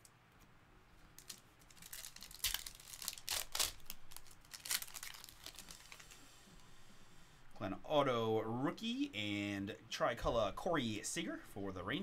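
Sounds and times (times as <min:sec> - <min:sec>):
foil wrapper tearing and crinkling: 0:01.2 - 0:06.2.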